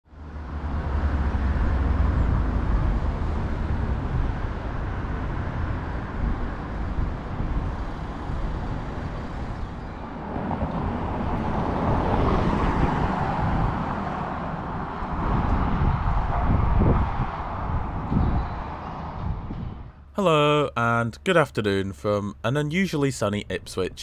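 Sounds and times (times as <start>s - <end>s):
road traffic noise: 0.1s - 24.0s.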